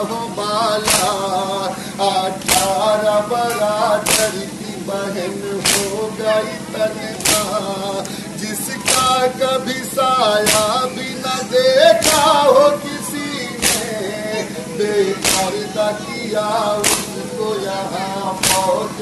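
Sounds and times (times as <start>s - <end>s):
man singing a lament: 0.0s - 19.0s.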